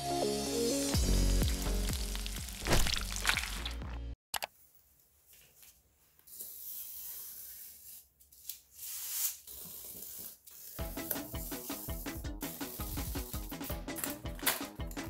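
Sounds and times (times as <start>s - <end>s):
background music: 0.0s - 4.2s, 10.8s - 15.0s
knife scraping through cardboard: 6.3s - 13.5s.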